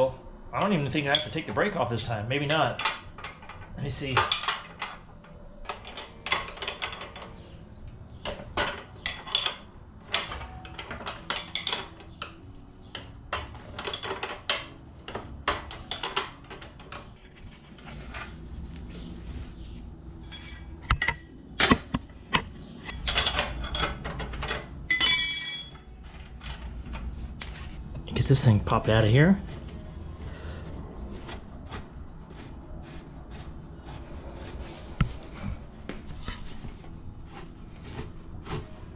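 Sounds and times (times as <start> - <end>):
ringing metal scrape: 20.2 - 21.1, 24.9 - 26.1
wrench clinking on axle nut: 22.9 - 25.9.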